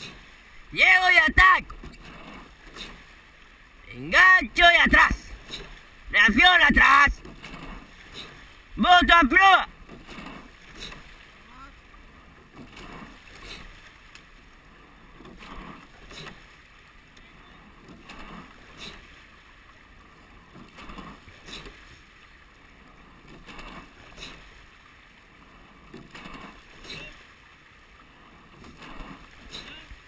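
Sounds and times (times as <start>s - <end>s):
water rushing past hull: 0.0s - 30.0s
oar knocks and splashes: 7.1s - 8.7s, 9.7s - 11.5s, 12.4s - 14.5s, 15.1s - 16.8s, 17.8s - 19.8s, 20.4s - 22.4s, 23.2s - 24.9s, 25.8s - 27.3s, 28.5s - 30.0s.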